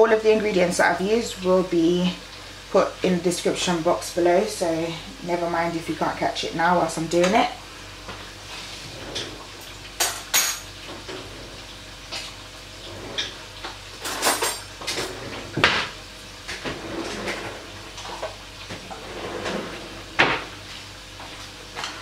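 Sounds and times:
kitchen utensils and dishes clattering: 0:08.8 - 0:20.6.

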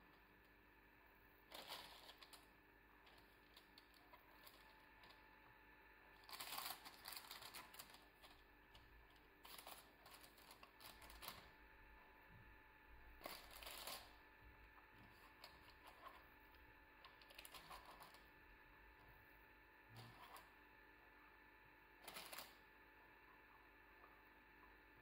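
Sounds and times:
parchment paper rustling: 0:01.5 - 0:05.3, 0:06.1 - 0:11.6, 0:13.2 - 0:14.2, 0:14.9 - 0:18.3.

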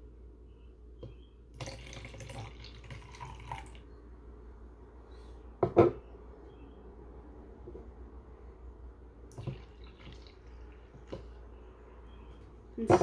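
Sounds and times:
liquid pouring and splashing: 0:01.6 - 0:03.8, 0:09.3 - 0:11.2.

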